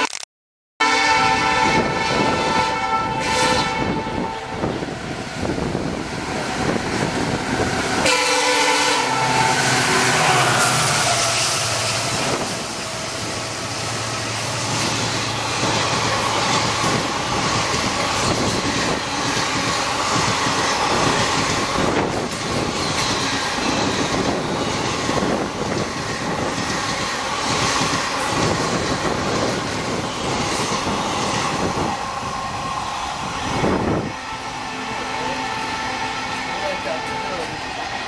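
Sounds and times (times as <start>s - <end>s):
train horn: 0.8s - 4.8s, 7.9s - 12.7s, 33.6s - 37.7s
diesel locomotive engine: 0.8s - 38.0s
train wheels rumbling on rails: 1.4s - 38.0s.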